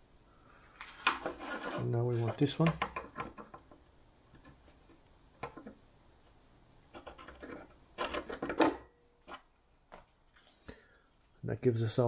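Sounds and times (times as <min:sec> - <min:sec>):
metal scratching on steel: 0:01.2 - 0:02.1.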